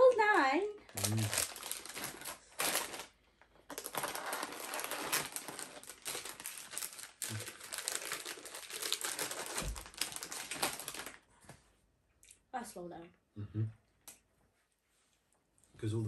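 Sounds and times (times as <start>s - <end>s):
plastic packets crinkling: 0.8s - 11.3s.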